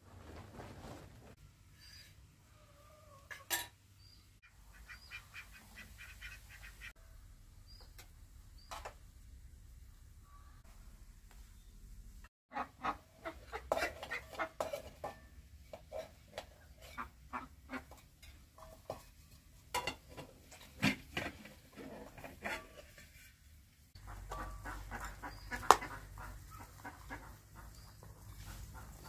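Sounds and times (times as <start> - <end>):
metal ladle scraping a pot: 13.6 - 19.1, 19.8 - 23.4.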